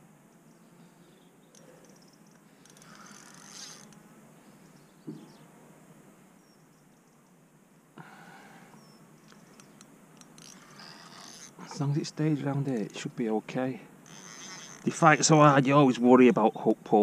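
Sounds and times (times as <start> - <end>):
fishing reel drag buzzing: 1.5 - 4.0, 8.8 - 11.8, 14.0 - 15.3.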